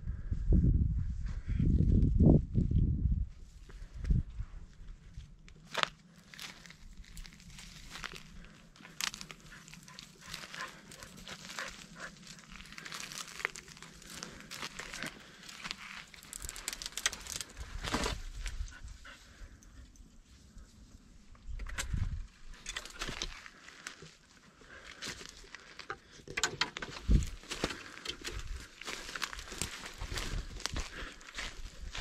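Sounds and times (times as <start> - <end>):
twigs and stones crunching underfoot: 3.4 - 32.0.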